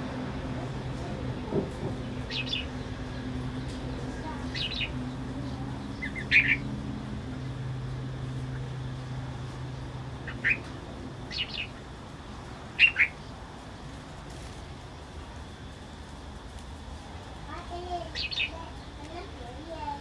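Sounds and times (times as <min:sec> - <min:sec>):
birds calling: 0:00.0 - 0:13.5, 0:17.6 - 0:19.3
low steady hum: 0:00.0 - 0:20.0.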